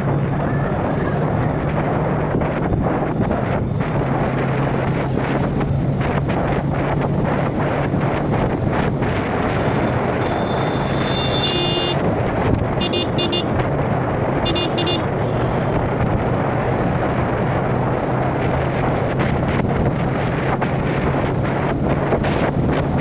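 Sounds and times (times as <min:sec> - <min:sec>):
motorcycle engine hum: 0:00.0 - 0:23.0
wind noise on microphone: 0:00.0 - 0:23.0
vehicle horn beeping: 0:10.2 - 0:12.0, 0:12.8 - 0:13.5, 0:14.4 - 0:15.4.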